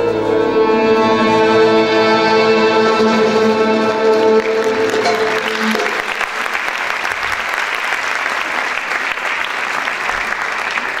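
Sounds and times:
audience applause: 4.1s - 11.0s.

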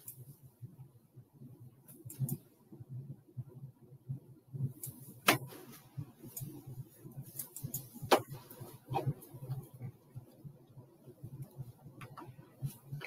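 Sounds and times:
low room rumble: 0.0s - 13.0s.

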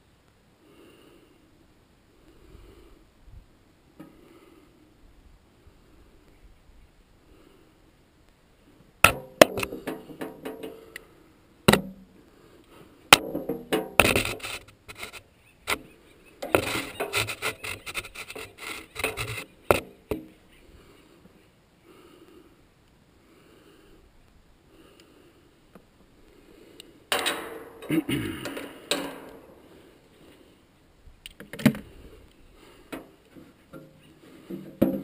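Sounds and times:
metal clinks and knocks: 27.1s - 29.5s.

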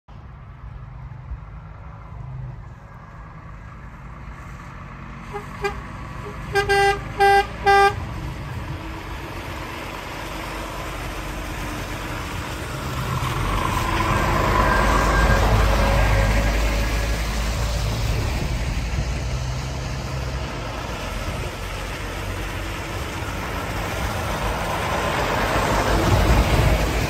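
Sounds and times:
diesel truck engine and tyres: 0.1s - 27.0s
truck horn toots: 5.3s - 8.1s.

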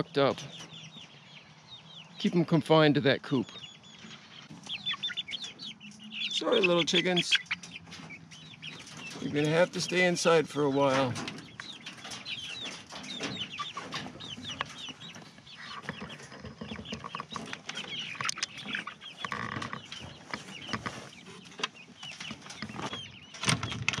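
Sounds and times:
chicks peeping and clucking: 0.0s - 24.0s
scattered clicks and knocks: 21.6s - 24.0s.

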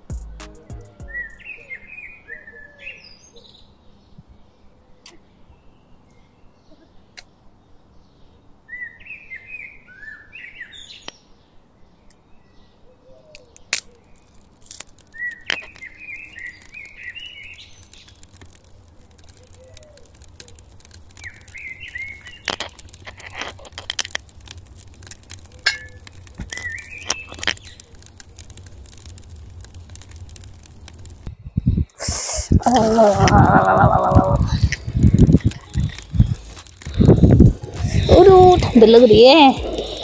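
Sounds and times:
dry twigs snapping: 13.3s - 31.3s, 32.4s - 40.0s.

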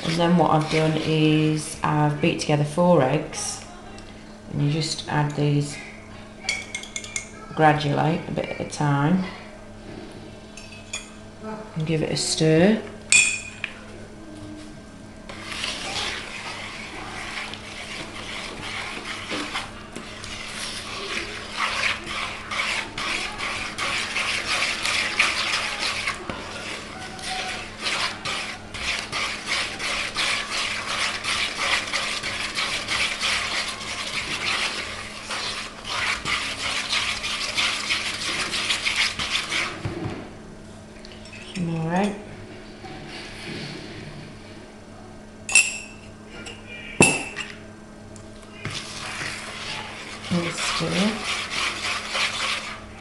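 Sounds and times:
wooden spoon beating batter: 0.0s - 1.9s, 15.3s - 40.2s, 48.6s - 53.0s.

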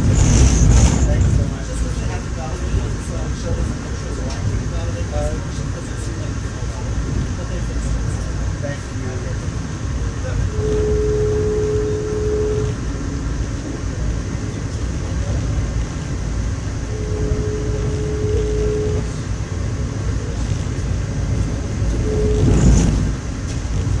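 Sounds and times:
rushing noise: 0.0s - 24.0s
train wheels rumbling: 0.0s - 24.0s
whining tone: 10.4s - 12.8s, 16.8s - 19.3s, 21.9s - 23.1s.

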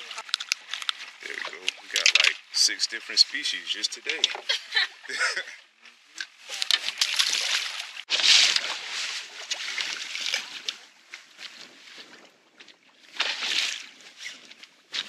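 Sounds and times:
water splashing against boat hull: 0.0s - 4.5s, 6.0s - 11.0s.

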